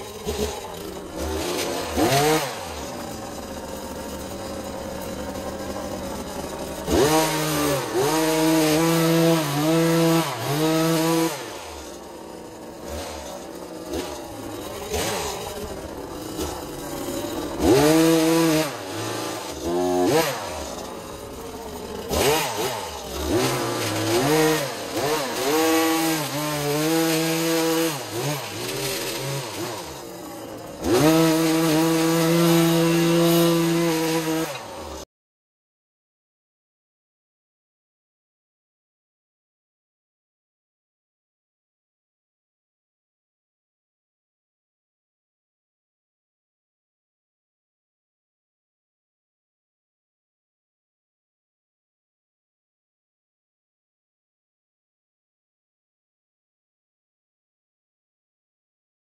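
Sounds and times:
two-stroke engine revving: 0.0 - 35.1.

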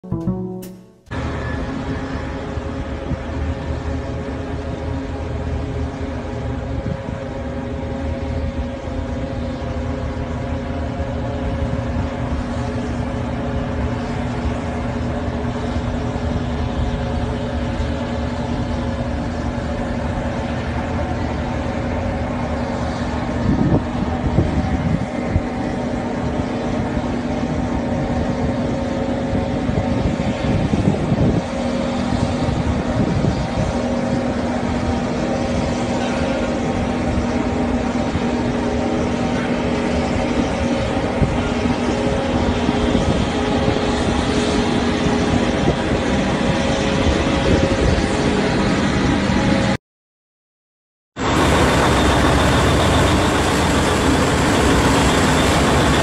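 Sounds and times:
heavy diesel engines humming: 51.2 - 56.0.

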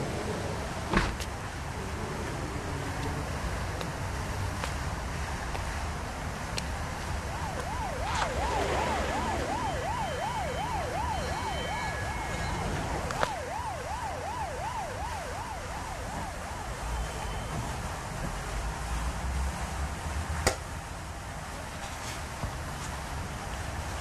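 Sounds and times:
low street rumble: 0.0 - 24.0
emergency siren yelping: 7.0 - 17.7.

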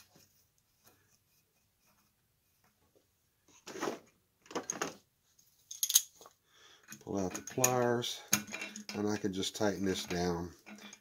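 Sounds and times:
faint handling sounds: 0.0 - 11.0
metal hand tools rattling: 6.8 - 11.0.

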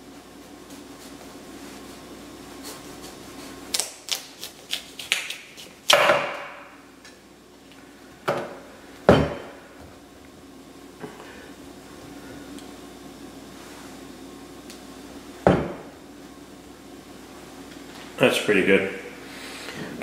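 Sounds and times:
knife crunching through pumpkin: 2.8 - 6.0
pumpkin slice cracking: 3.7 - 6.0.

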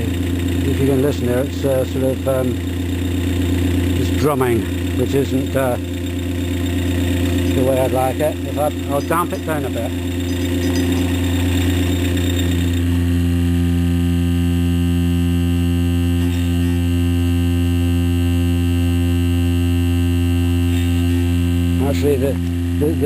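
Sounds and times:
generator humming with overtones: 0.0 - 23.0.

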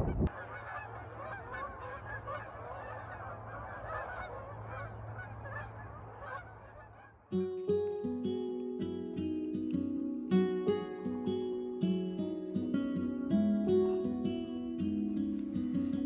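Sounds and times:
geese honking: 0.0 - 16.0
acoustic guitar music: 7.3 - 16.0.

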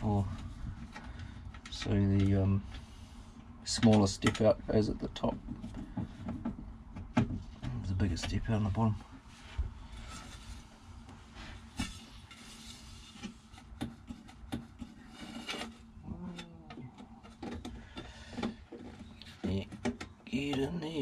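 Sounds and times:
parts rubbing and scraping: 7.4 - 21.0.

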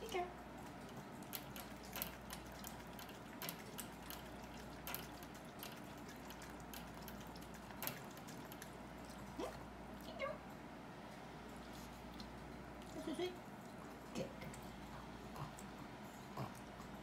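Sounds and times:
dog licking water feeder nozzle: 0.0 - 9.6.

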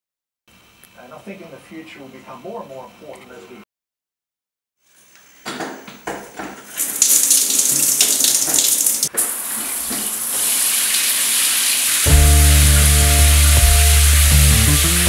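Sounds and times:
shower spraying water: 6.6 - 15.0
music: 12.1 - 15.0.

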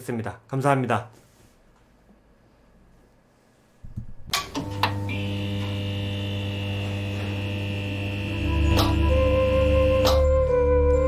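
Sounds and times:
electrical hum: 3.8 - 10.2
crackling electrical clicks: 4.3 - 9.2.

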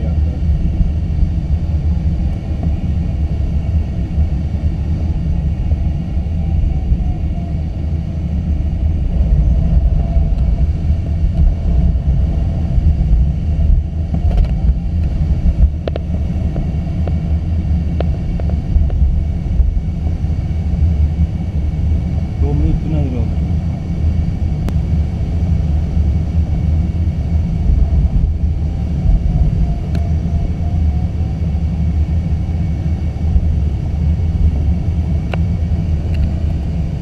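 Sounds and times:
airflow over canopy: 0.0 - 37.0.

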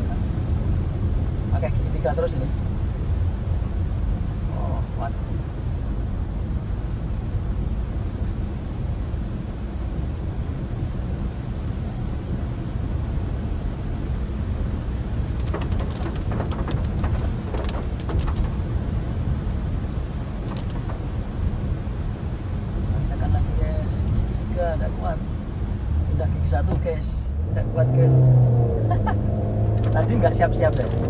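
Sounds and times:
car engine labouring uphill: 0.0 - 31.0
in-cabin tyre rumble: 0.0 - 31.0
clicks and taps: 15.3 - 18.6.

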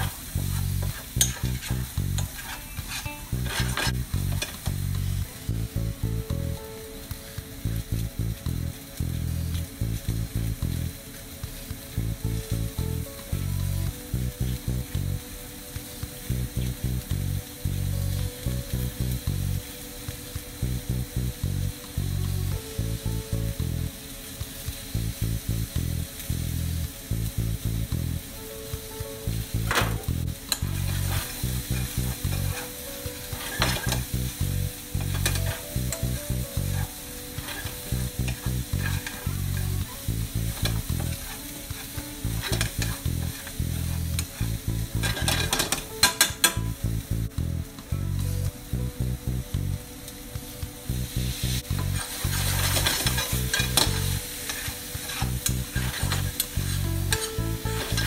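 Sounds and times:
metal spatula scraping a pan: 0.0 - 5.3, 29.7 - 34.1, 34.9 - 39.8, 40.5 - 46.8, 51.8 - 58.0
food sizzling in a frying pan: 0.0 - 58.0.

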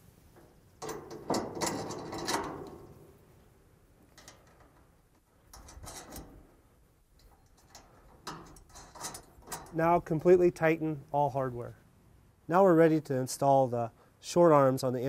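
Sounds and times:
metal hardware clinking: 0.8 - 3.0, 7.2 - 9.8.

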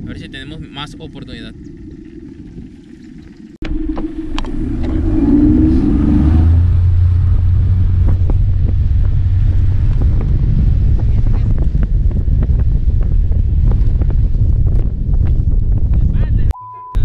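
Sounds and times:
outboard motor running: 0.0 - 11.8.

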